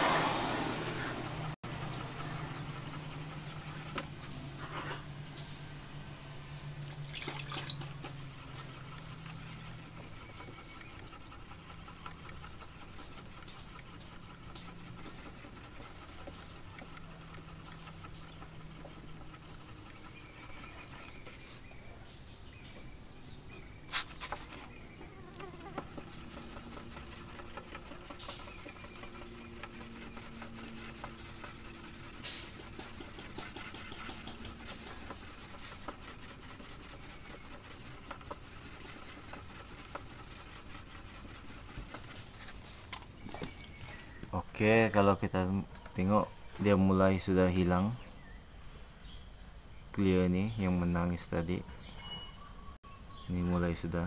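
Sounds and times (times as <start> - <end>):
sanding block rubbing: 0.0 - 4.1, 7.0 - 21.7, 23.6 - 42.8.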